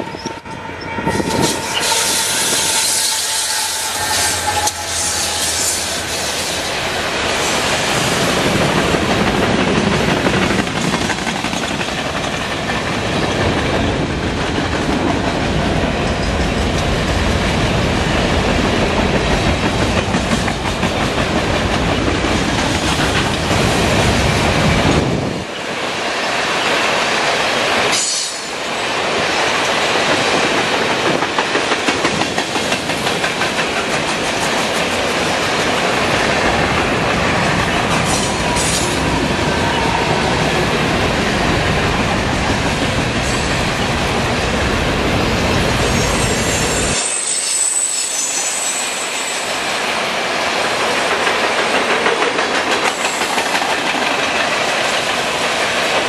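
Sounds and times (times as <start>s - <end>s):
freight train rumbling on rails: 0.0s - 56.0s
clickety-clack over rail joints: 7.2s - 44.7s, 50.4s - 56.0s.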